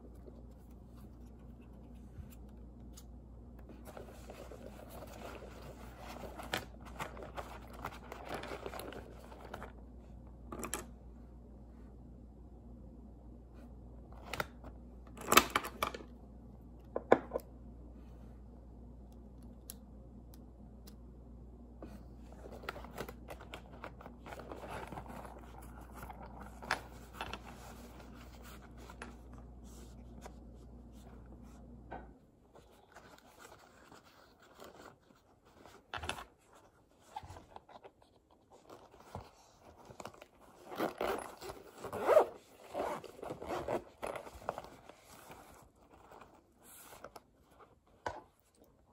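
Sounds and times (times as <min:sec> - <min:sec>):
fabric rustling: 0:38.7 - 0:46.8
zipper pulls: 0:40.5 - 0:44.7.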